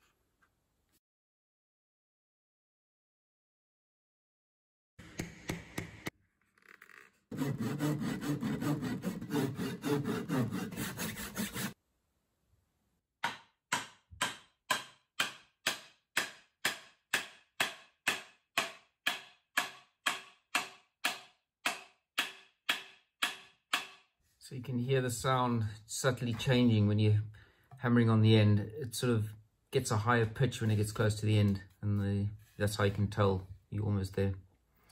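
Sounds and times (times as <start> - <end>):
hand saw sawing wood: 7.3 - 11.8.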